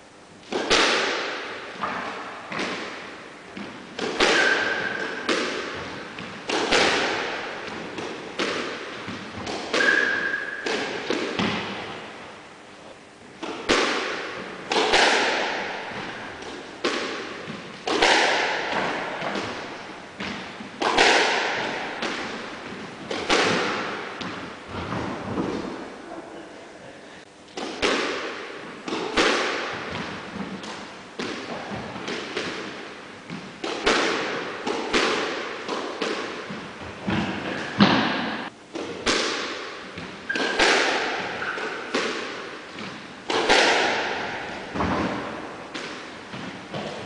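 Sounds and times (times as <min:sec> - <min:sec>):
squash ball hitting rackets and walls: 0:00.4 - 0:25.9, 0:27.5 - 0:47.0
shoe squeaks: 0:09.8 - 0:10.6, 0:41.4 - 0:41.6.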